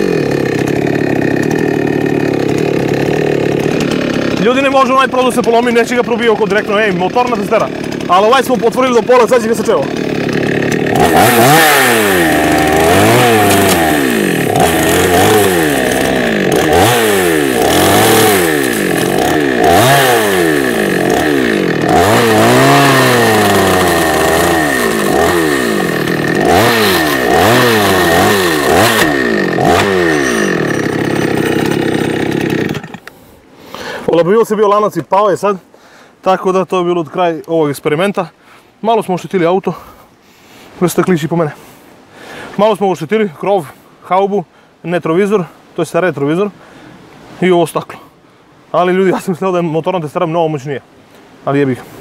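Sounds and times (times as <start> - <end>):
chainsaw revving: 0.0 - 34.1.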